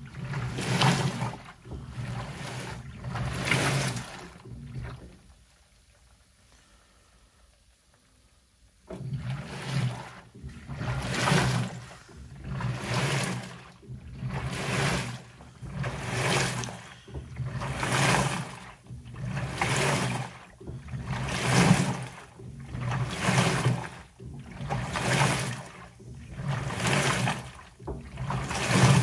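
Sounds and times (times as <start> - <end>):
washer agitating wash load: 0.0 - 5.8, 8.8 - 29.0
low hum: 8.9 - 27.2.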